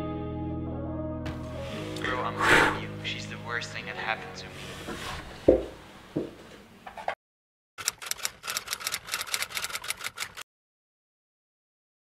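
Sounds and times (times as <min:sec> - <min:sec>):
typewriter keys clacking: 0:07.8 - 0:10.4.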